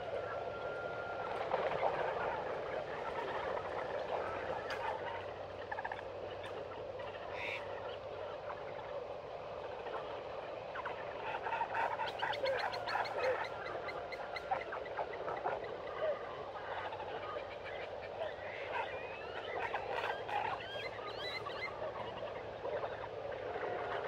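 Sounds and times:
meerkats chattering and chirping: 0:17.4 - 0:21.8.

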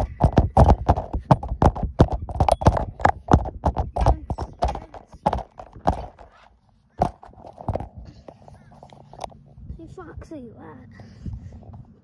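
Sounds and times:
thumps and knocks: 0:00.0 - 0:08.1.

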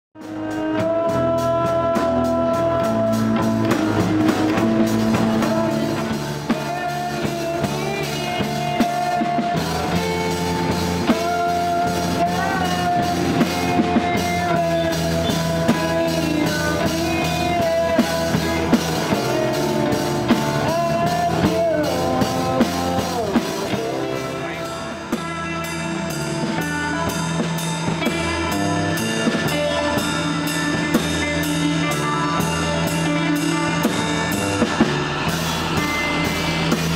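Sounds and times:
drum kit with cymbals: 0:00.2 - 0:36.9
person singing wavering melody: 0:04.6 - 0:36.9.

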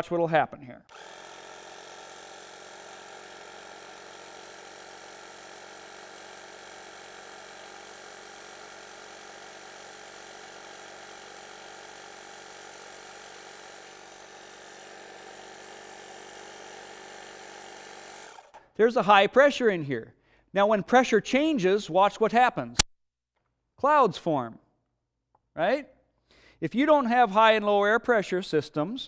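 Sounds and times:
electric tire pump humming: 0:00.9 - 0:18.6.

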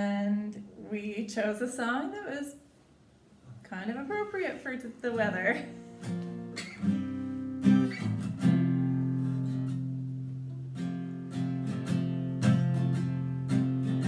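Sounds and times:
acoustic guitar strumming chords: 0:05.2 - 0:14.0.

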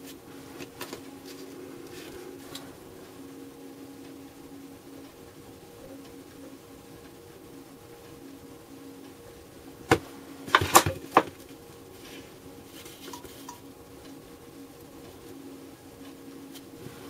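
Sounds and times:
hands rustling: 0:00.0 - 0:03.2
steady low hum: 0:00.0 - 0:17.0.

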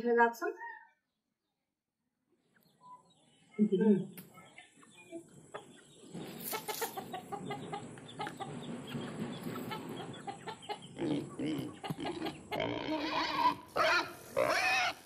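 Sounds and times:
chickens clucking: 0:02.4 - 0:15.0
pig grunting and squealing: 0:10.9 - 0:15.0.

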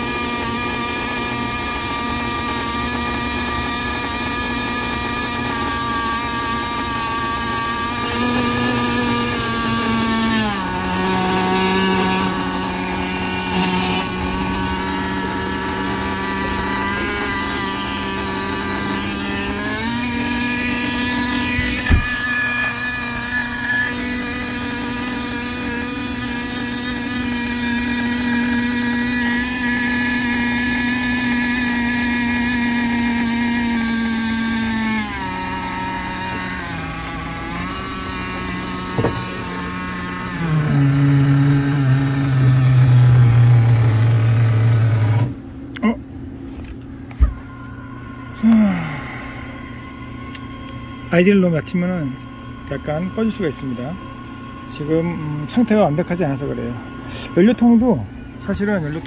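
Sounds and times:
small nitro engine idling: 0:00.0 - 0:46.0
sharp knock: 0:39.0 - 0:39.2.

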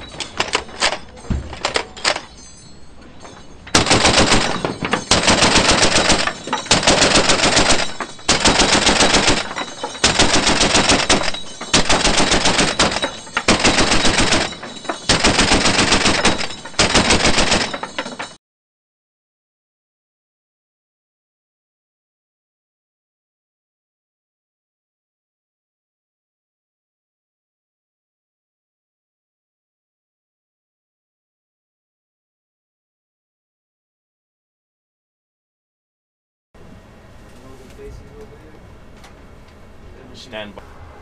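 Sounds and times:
machine gun firing: 0:03.7 - 0:18.1.

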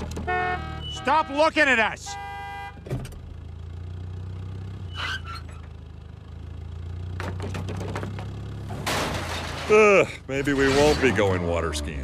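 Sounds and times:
car horn honk: 0:00.0 - 0:03.0
car engine running: 0:00.0 - 0:12.0.

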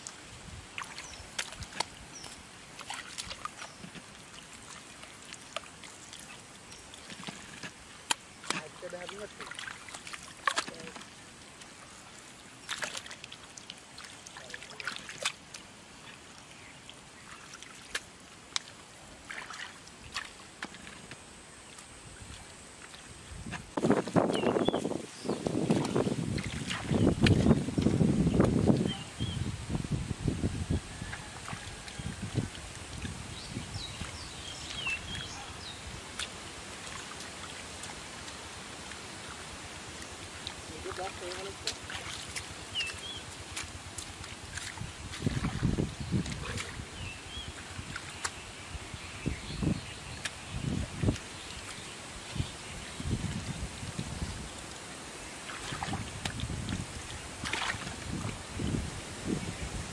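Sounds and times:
mud squelching by hand: 0:00.0 - 0:29.1, 0:31.0 - 0:48.6, 0:49.4 - 0:58.9
small water splashes: 0:00.0 - 0:29.7, 0:30.8 - 0:59.9
muddy water trickling: 0:00.0 - 0:59.9
soft splashy thumps: 0:57.4 - 0:58.4.

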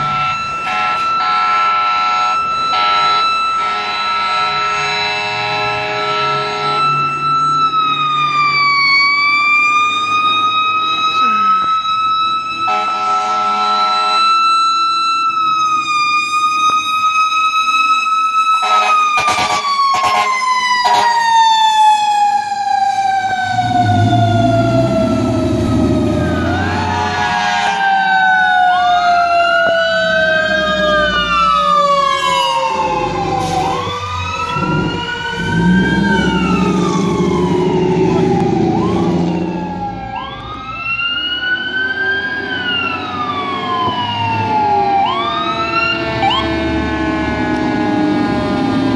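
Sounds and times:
electronic siren wailing: 0:00.0 - 0:48.9
mechanical siren wailing: 0:00.0 - 0:48.9
short horn blasts: 0:12.7 - 0:14.2, 0:18.6 - 0:21.1, 0:26.9 - 0:27.8
truck engine rumble: 0:20.8 - 0:48.9.

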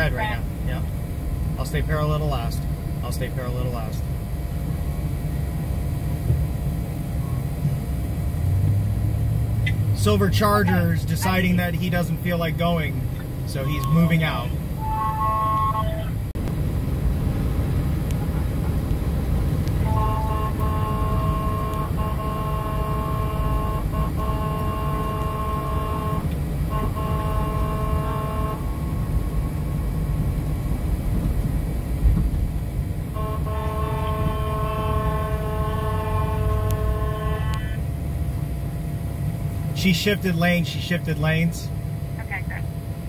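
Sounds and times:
low road rumble in cabin: 0:00.0 - 0:43.0
vehicle horn blasts: 0:13.6 - 0:16.2, 0:19.8 - 0:29.4, 0:33.1 - 0:37.8.

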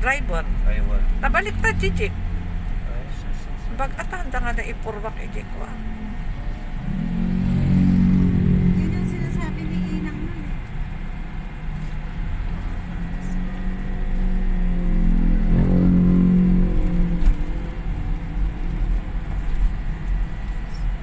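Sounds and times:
car road rumble on dirt road: 0:00.0 - 0:21.0
motor scooter passing: 0:06.7 - 0:10.6.

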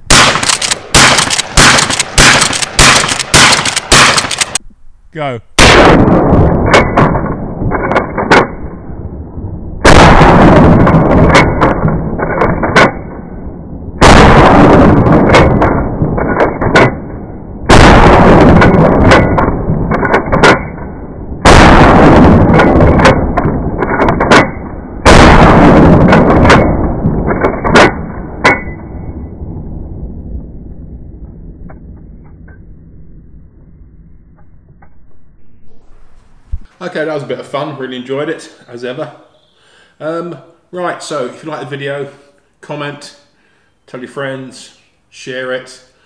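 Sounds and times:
shotgun booms: 0:00.0 - 0:04.6, 0:05.6 - 0:08.8, 0:09.8 - 0:13.2, 0:14.0 - 0:28.8.

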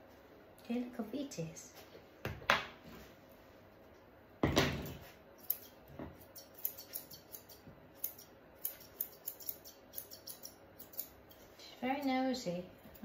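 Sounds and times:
scissors snipping: 0:05.4 - 0:11.4.

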